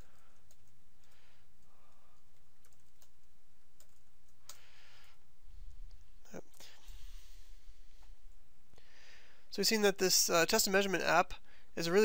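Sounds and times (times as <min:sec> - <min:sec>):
computer keyboard typing: 0:00.0 - 0:01.2, 0:01.9 - 0:04.6
faint low hum: 0:00.0 - 0:12.0.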